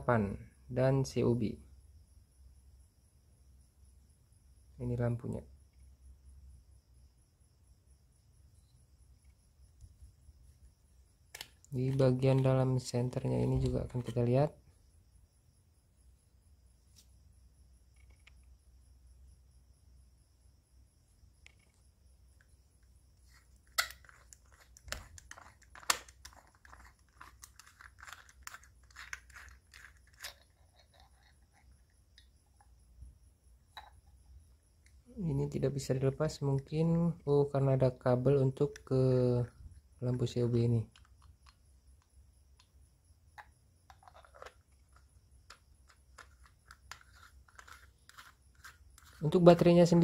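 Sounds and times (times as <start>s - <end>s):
flashlight body unscrewing scrape: 23.2s - 31.8s, 43.9s - 49.2s.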